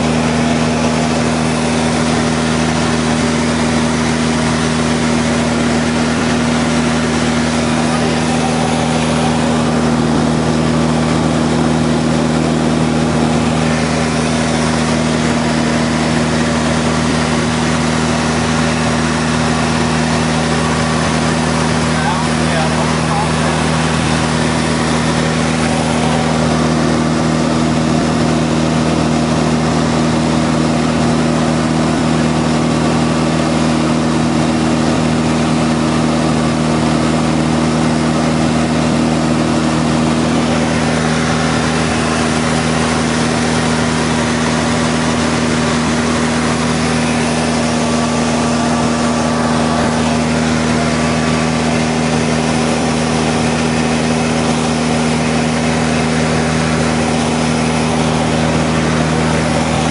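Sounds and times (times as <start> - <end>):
propeller aircraft engine droning: 0.0 - 59.9.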